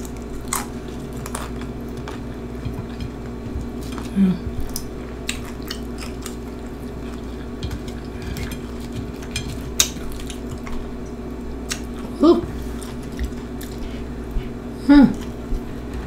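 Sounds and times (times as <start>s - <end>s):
chips crackling and snapping: 0.0s - 2.2s, 4.7s - 12.0s
short hummed vocal sound: 3.5s - 5.0s, 11.6s - 16.0s.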